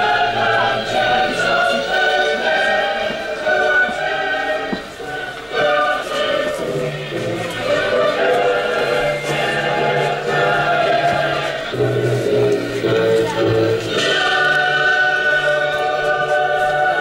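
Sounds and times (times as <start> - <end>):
choir singing long notes: 0.0 - 17.0.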